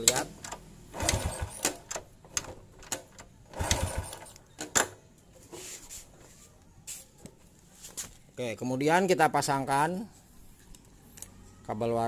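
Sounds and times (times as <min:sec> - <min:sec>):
motorcycle engine kickstart cranking: 0:00.0 - 0:05.0.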